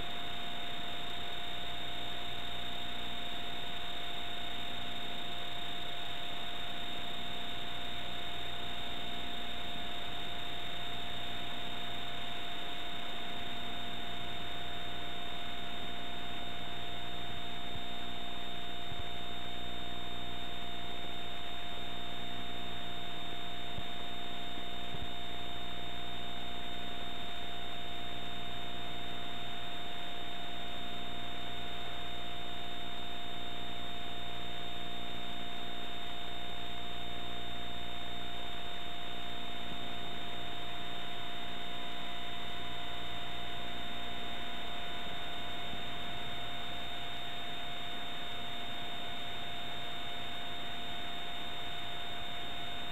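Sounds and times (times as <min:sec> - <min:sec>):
electrical hum: 0:00.0 - 0:52.9.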